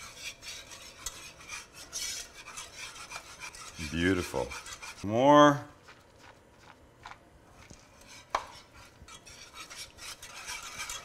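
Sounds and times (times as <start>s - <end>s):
whisk clicking against pan: 0.0s - 5.0s, 7.6s - 11.0s
wire whisk stirring sauce: 0.0s - 5.1s, 5.7s - 11.0s
whisk scraping pan: 0.0s - 11.0s.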